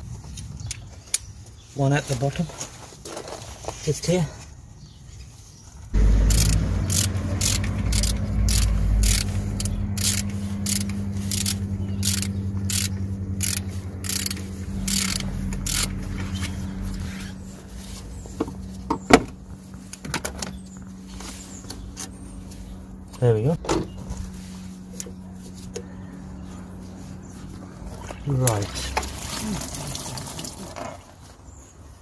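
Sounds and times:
steady low hum: 5.9 - 28.4
ratchet wrench clicking: 6.2 - 16.0.

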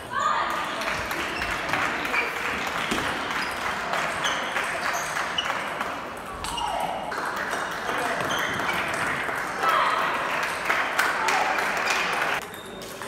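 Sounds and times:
applause: 0.7 - 5.6, 7.1 - 12.4
high squeaks: 3.2 - 5.8.

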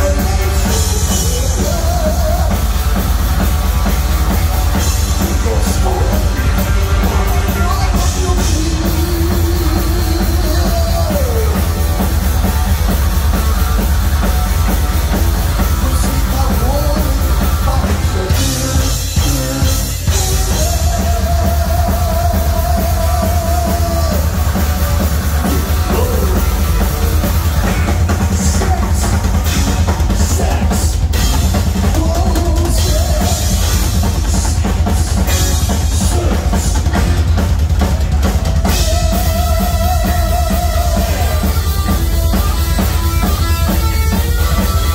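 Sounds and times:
bass guitar: 0.0 - 44.9
distorted electric guitar: 0.0 - 44.9
rock drum kit: 0.0 - 44.9.

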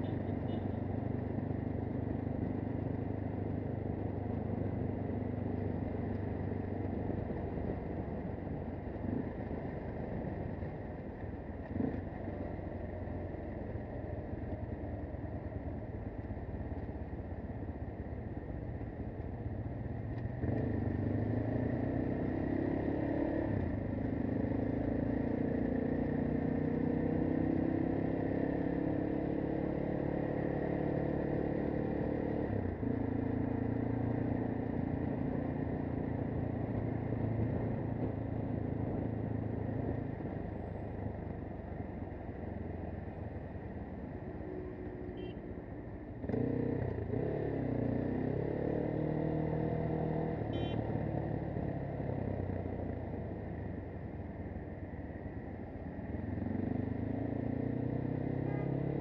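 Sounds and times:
motorcycle engine running: 58.4 - 59.0.

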